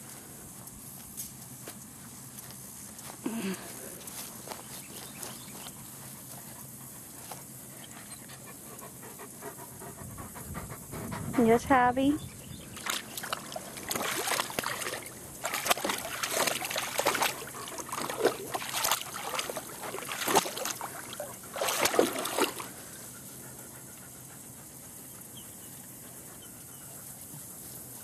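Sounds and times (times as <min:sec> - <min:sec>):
water splashing in wading pool: 0:12.8 - 0:22.8.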